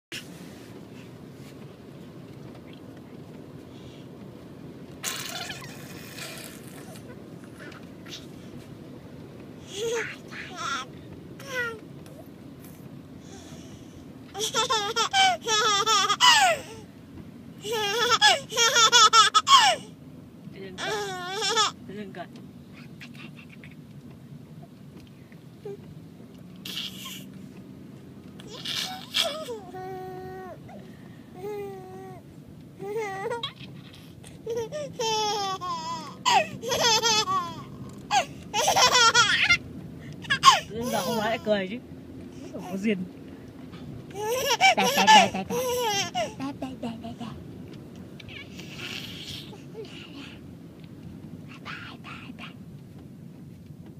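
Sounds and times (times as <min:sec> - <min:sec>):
car road noise rumble: 0:00.1 - 0:53.9
baby laughing: 0:05.0 - 0:07.0, 0:14.4 - 0:16.7, 0:17.6 - 0:19.8, 0:20.8 - 0:21.7, 0:26.6 - 0:27.3, 0:28.4 - 0:30.1, 0:32.9 - 0:39.6, 0:40.2 - 0:41.4, 0:44.2 - 0:47.4, 0:48.3 - 0:50.4.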